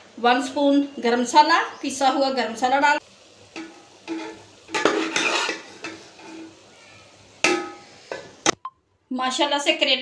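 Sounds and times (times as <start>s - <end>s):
metal spoon scraping a pot: 3.6s - 6.6s.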